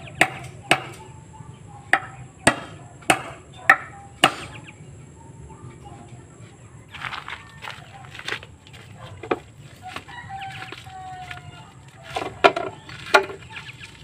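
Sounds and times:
hammer striking lumber: 0.2 - 1.0, 1.9 - 4.5.

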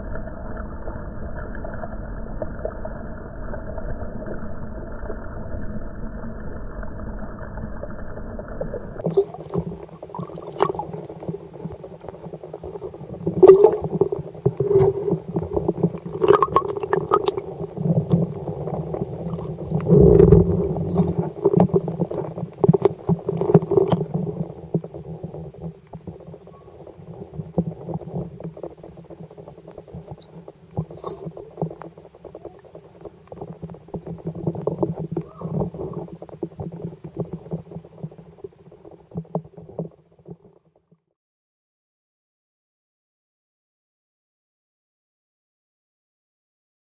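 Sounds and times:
underwater churning gurgle: 8.6 - 40.6
dull steady rumble: 8.8 - 39.2.

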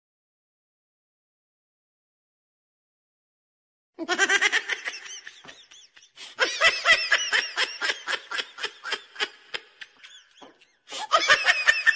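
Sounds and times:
person laughing: 4.0 - 11.9.

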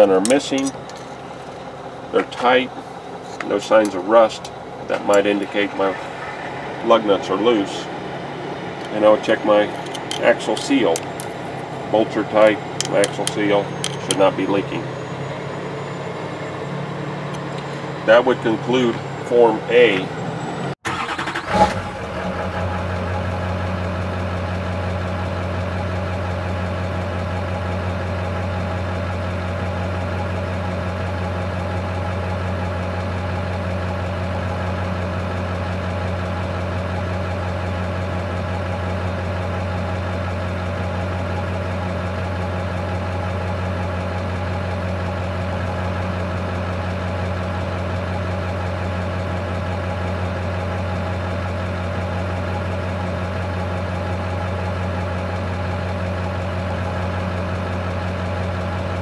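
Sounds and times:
truck engine idling: 0.0 - 59.0.

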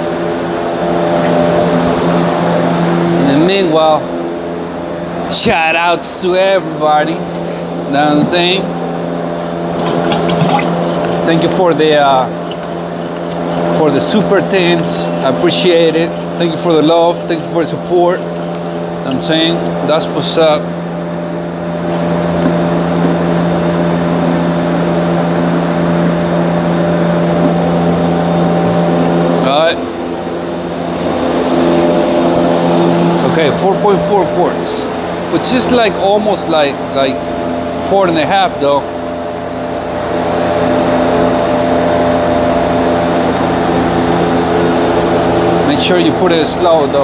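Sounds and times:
low mechanical hum: 0.0 - 47.0
oil pouring through a funnel: 9.7 - 20.3.

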